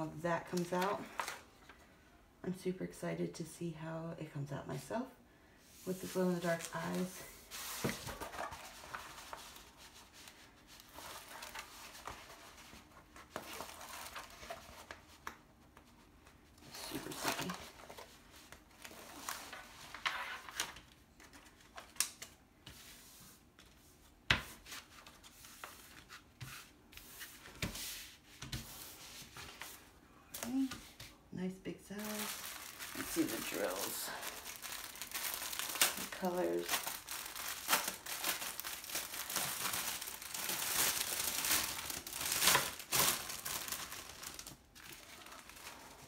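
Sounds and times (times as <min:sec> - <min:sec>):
plastic wrapping crinkling: 0:06.4 - 0:15.4, 0:32.0 - 0:46.0.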